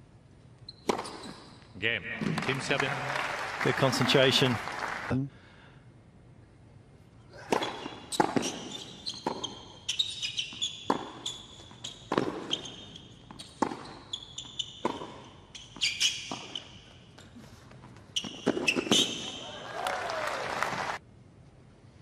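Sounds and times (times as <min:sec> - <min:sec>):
shoes squeaking on court: 0:00.6 - 0:01.8, 0:07.5 - 0:19.4
ball bouncing on court: 0:07.5 - 0:09.6, 0:10.6 - 0:16.6
racquets hitting tennis ball: 0:07.5 - 0:09.7, 0:10.5 - 0:16.6.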